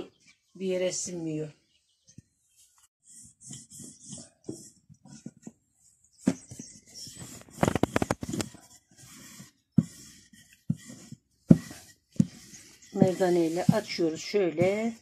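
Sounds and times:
hand brushing flour on board: 6.9s - 15.0s.

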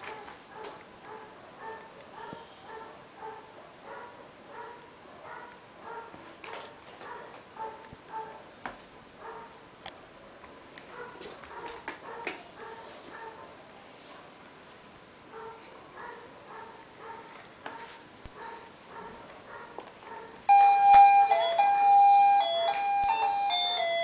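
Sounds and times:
toy beeping tune: 20.5s - 24.0s.

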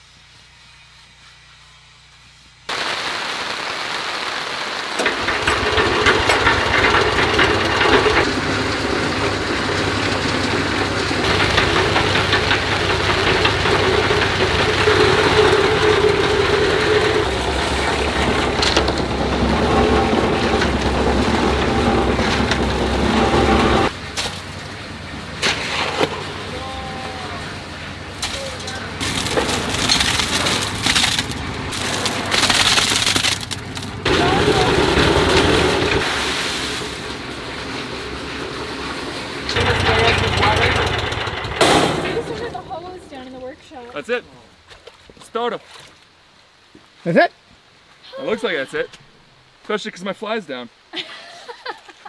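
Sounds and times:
steady hiss: 0.0s - 6.3s
cement mixer engine running: 5.0s - 43.8s.

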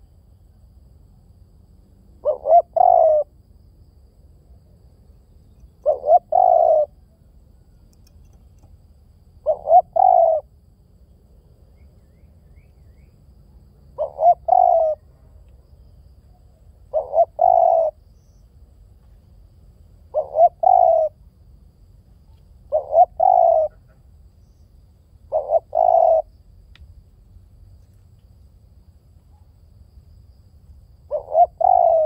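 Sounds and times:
dove cooing: 2.2s - 3.3s, 5.8s - 7.0s, 9.4s - 10.5s, 14.0s - 15.1s, 16.9s - 18.0s, 20.1s - 21.2s, 22.7s - 24.0s, 25.3s - 26.3s, 31.1s - 32.0s.

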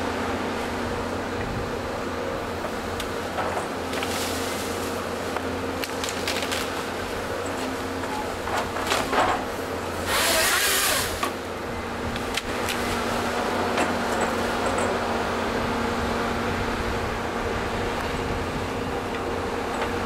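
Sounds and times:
diesel engine running: 0.0s - 20.0s
wood cracking and snapping: 5.7s - 9.6s
chainsaw cutting log: 8.6s - 11.5s.

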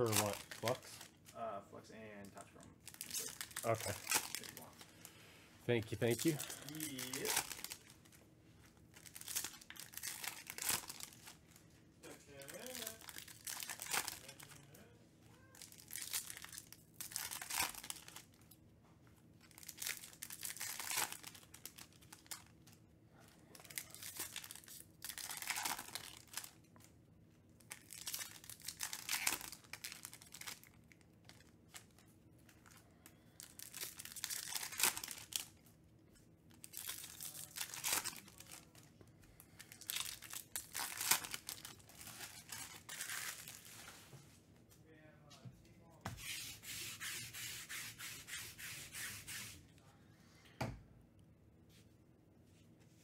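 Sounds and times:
foil wrappers crinkling: 0.0s - 1.3s, 2.8s - 5.2s, 5.8s - 14.8s, 15.6s - 18.6s, 19.4s - 22.8s, 23.5s - 26.9s, 27.6s - 35.6s, 36.5s - 44.0s.

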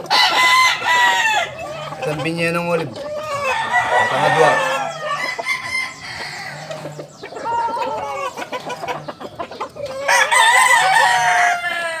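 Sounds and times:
rooster crowing: 0.0s - 1.8s, 3.1s - 6.8s, 10.0s - 12.0s
chickens clucking: 0.0s - 12.0s.

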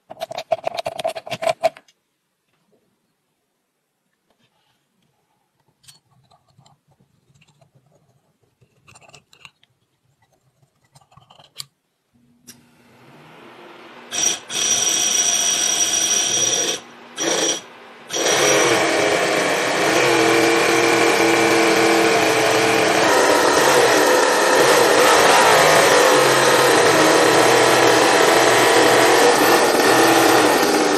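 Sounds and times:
model engine buzzing: 17.2s - 30.9s.

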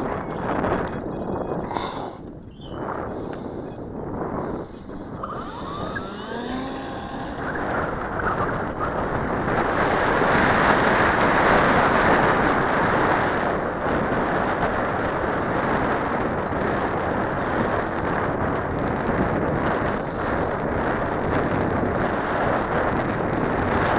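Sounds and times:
wind buffeting microphone: 0.0s - 23.9s
electric motor whining: 4.6s - 10.5s.

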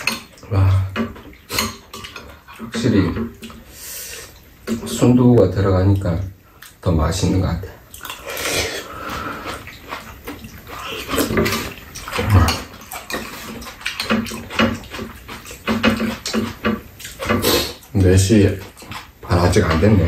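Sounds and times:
people slurping noodles: 8.1s - 17.9s.

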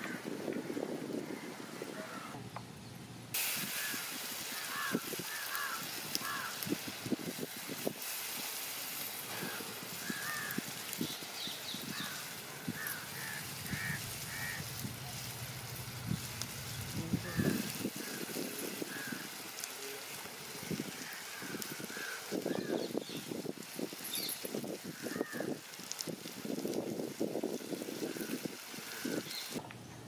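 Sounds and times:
steady cooking hiss: 0.0s - 2.3s, 3.3s - 29.6s
birds chirping: 9.0s - 23.4s, 24.0s - 25.4s, 28.9s - 29.6s.

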